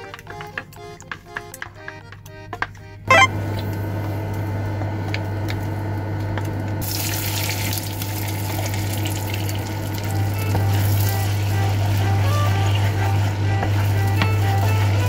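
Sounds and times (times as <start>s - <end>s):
brief loud noise: 3.1s - 3.3s
butter sizzling in a frying pan: 6.8s - 15.0s.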